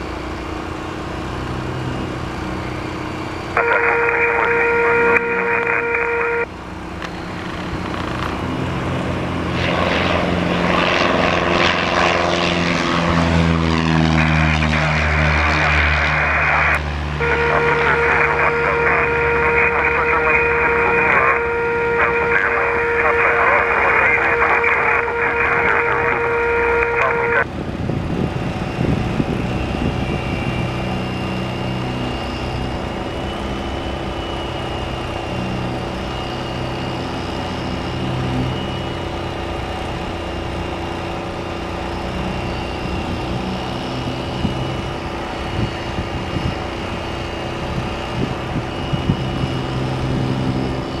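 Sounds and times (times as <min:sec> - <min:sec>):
steady engine drone: 0:00.0 - 0:51.0
radio transmission: 0:03.5 - 0:08.4, 0:15.0 - 0:27.5.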